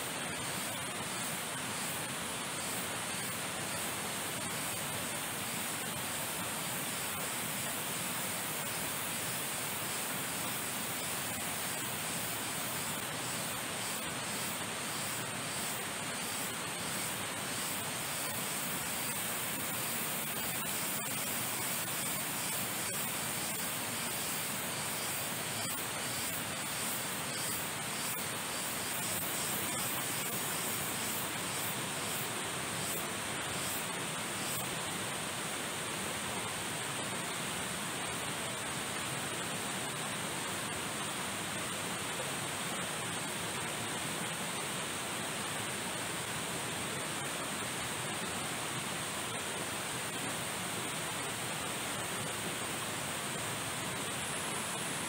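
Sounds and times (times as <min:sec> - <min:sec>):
water rushing: 0:00.0 - 0:55.0.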